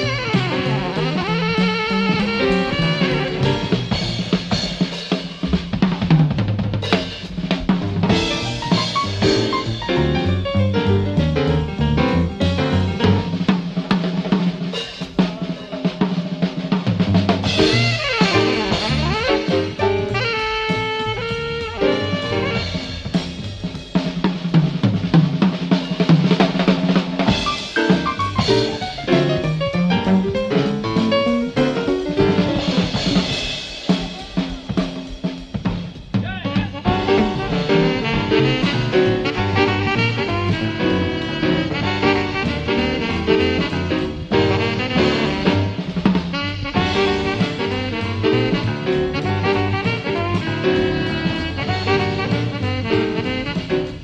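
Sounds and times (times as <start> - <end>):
low bass line: 0.0 - 4.4, 8.0 - 13.5, 17.4 - 22.8, 27.5 - 33.3, 36.8 - 45.9
piano notes: 0.0 - 6.0, 6.9 - 14.6, 17.1 - 23.4, 27.2 - 35.1, 36.8 - 54.0
drum kit: 0.0 - 54.0
jazz band playing live: 0.0 - 54.0.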